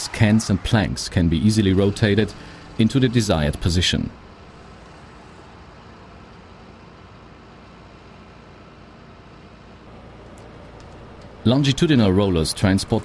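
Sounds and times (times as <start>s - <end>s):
hydraulic machinery humming: 0.0s - 6.6s.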